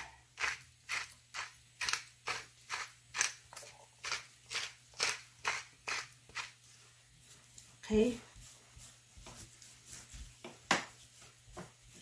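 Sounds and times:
pepper grinder grinding: 0:00.0 - 0:06.6.

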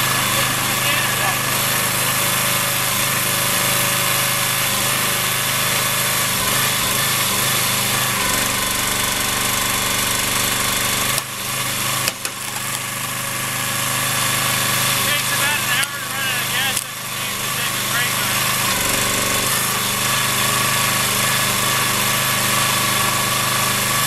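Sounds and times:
log splitter engine running: 0:00.0 - 0:24.0
log cracking as it splits: 0:10.4 - 0:13.2.

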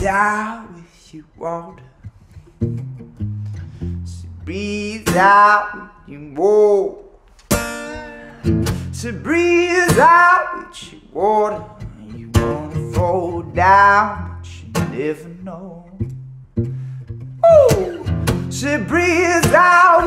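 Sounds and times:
acoustic guitar strummed: 0:00.0 - 0:06.6, 0:07.4 - 0:20.0
person singing long sliding notes: 0:17.4 - 0:18.1.

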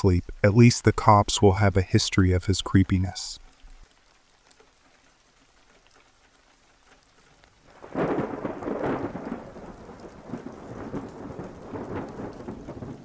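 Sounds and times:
steady hiss of rain: 0:00.0 - 0:13.0
thunder rumbling: 0:07.7 - 0:13.0.

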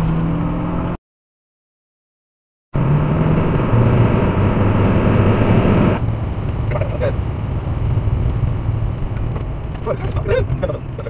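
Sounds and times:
car road and engine drone: 0:00.0 - 0:01.0, 0:02.8 - 0:11.0.

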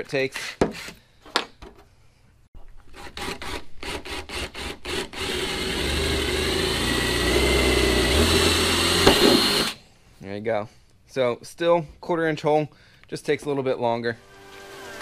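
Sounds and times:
power drill boring: 0:04.0 - 0:09.8.

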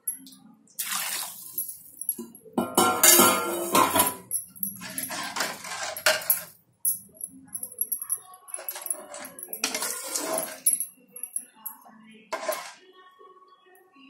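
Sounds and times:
metal ladle scraping a pot: 0:04.8 - 0:06.4, 0:08.6 - 0:10.7, 0:12.3 - 0:12.8.

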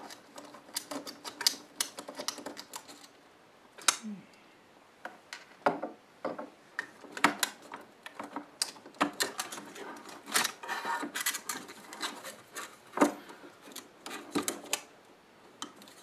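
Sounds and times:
plastic and metal clicks and scraping: 0:00.0 - 0:03.2, 0:06.4 - 0:14.9.

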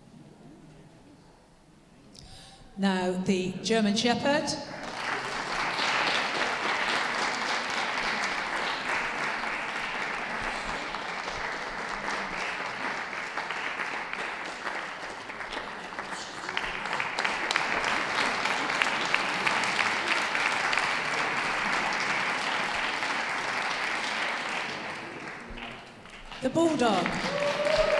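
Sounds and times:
audience applauding: 0:04.8 - 0:27.9.

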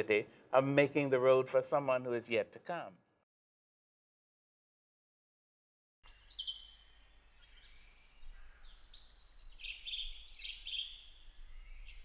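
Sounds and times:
birds chirping and singing: 0:06.1 - 0:12.0.

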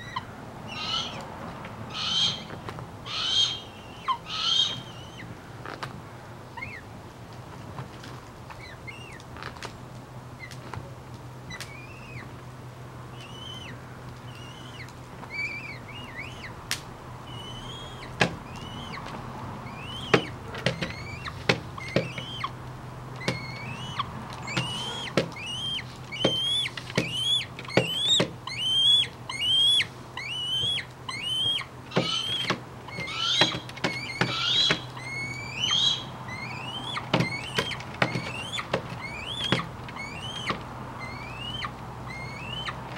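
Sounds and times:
hawk calling with upswept cries: 0:00.0 - 0:01.3, 0:01.9 - 0:05.3, 0:13.1 - 0:16.6, 0:17.2 - 0:42.9
low steady hum: 0:00.0 - 0:42.9.

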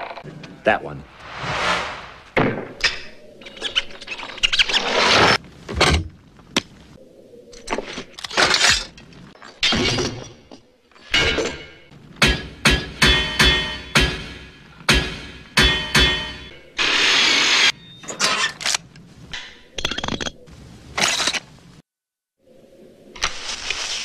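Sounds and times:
metal armour clanking and clattering: 0:08.2 - 0:14.6.

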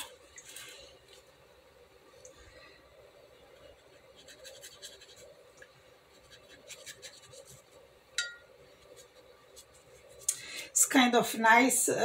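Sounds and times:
brush scratching on paper: 0:03.6 - 0:05.3, 0:06.1 - 0:07.7.

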